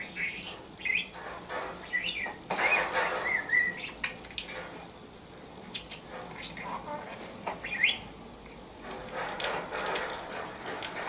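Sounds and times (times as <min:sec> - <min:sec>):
budgerigar chirping and warbling: 0:00.1 - 0:01.1, 0:01.9 - 0:04.0, 0:07.6 - 0:08.0.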